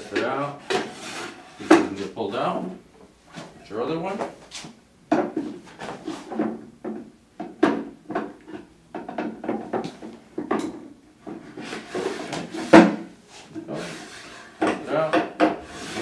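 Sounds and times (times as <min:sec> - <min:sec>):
drawer scraping on wooden runners: 0:00.1 - 0:02.1, 0:11.2 - 0:16.0
wood-on-wood knocks: 0:06.3 - 0:11.4, 0:12.6 - 0:13.1, 0:14.6 - 0:15.6.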